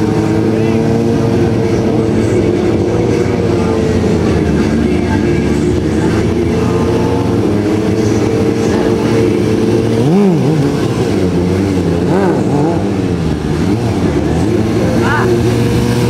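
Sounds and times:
motorcycle engine revving: 0.0s - 16.0s
motorcycle engines running: 0.0s - 16.0s.

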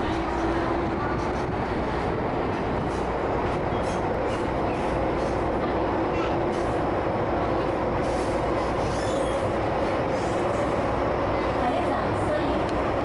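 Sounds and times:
subway train running: 0.0s - 13.0s
high wheel squeal: 8.7s - 9.5s.

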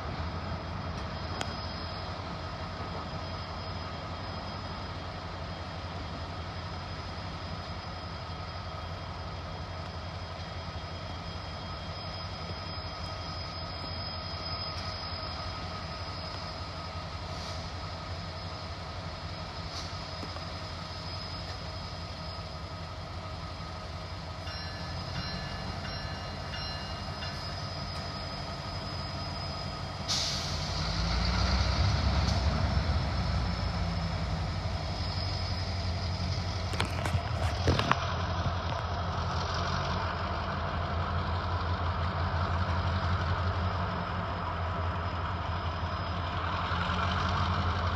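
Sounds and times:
faint high whine: 0.0s - 39.1s
diesel locomotive idling: 0.0s - 47.9s
air hiss: 30.0s - 31.2s.

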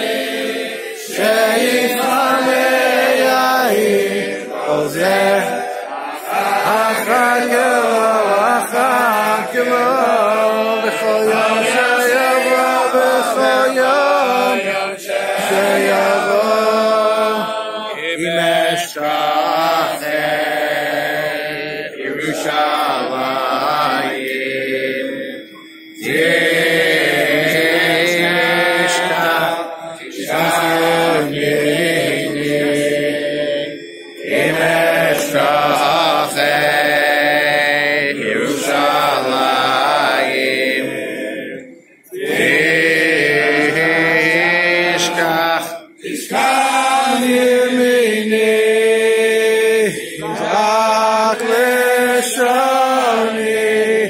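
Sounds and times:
men chanting a slow song: 0.0s - 54.0s.

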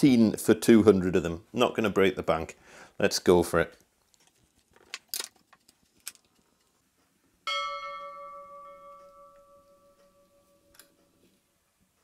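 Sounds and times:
faint creaks and clicks: 3.7s - 7.4s
ringing metallic clang: 7.5s - 10.9s.

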